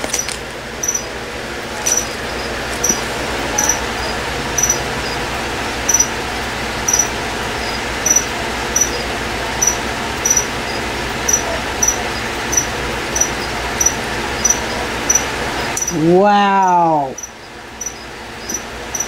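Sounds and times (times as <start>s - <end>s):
short high-pitched chirps: 0.8s - 1.1s, 4.6s - 5.2s, 5.9s - 6.1s, 6.9s - 9.0s, 9.6s - 15.2s.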